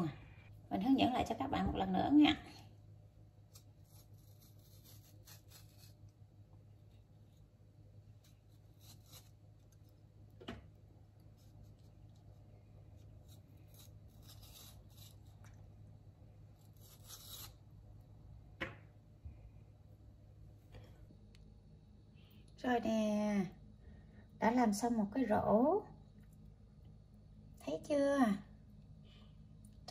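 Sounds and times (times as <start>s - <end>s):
peeler scraping leaf skin: 3.4s - 6.2s, 8.1s - 10.0s, 13.0s - 15.6s, 16.6s - 17.7s.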